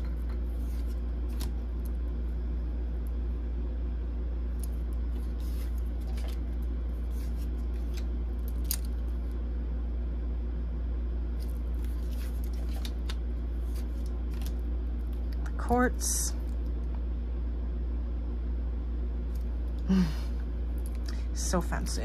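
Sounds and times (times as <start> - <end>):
steady low hum: 0.0 - 22.0
cards sliding and clicking: 0.6 - 1.9.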